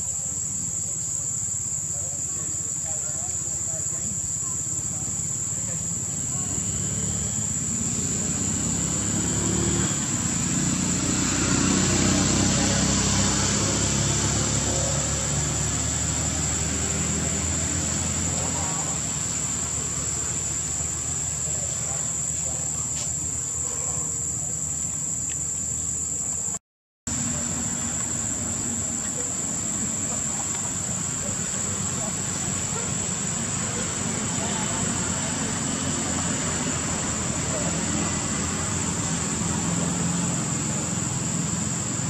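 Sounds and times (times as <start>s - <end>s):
high-pitched insect drone: 0.0s - 26.6s.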